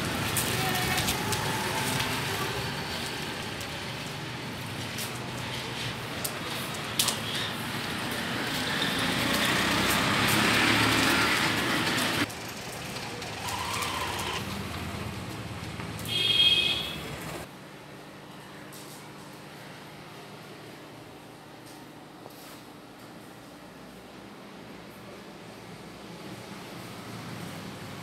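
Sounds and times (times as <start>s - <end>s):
road traffic hum: 0.0s - 17.5s, 24.7s - 28.0s.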